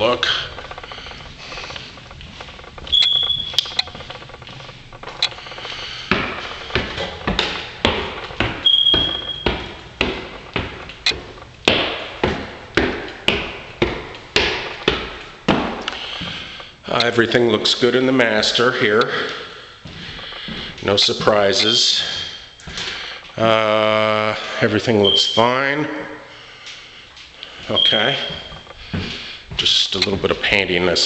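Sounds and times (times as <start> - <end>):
footsteps on wooden stairs: 0.0 - 16.8, 19.0 - 23.0, 27.2 - 30.5.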